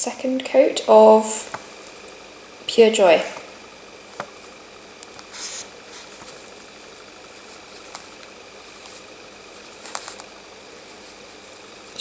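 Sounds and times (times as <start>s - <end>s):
faint steady hiss: 0.0s - 12.0s
brush scraping bottle: 5.3s - 6.3s.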